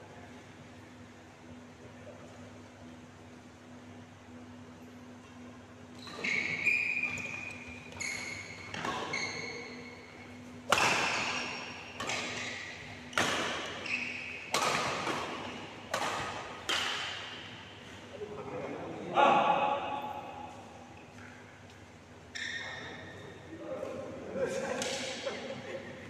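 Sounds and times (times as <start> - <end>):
shoe squeaks on court: 6.0 - 10.1, 11.1 - 12.7, 13.7 - 14.5, 22.3 - 23.3
racket hitting shuttlecock: 10.6 - 17.6.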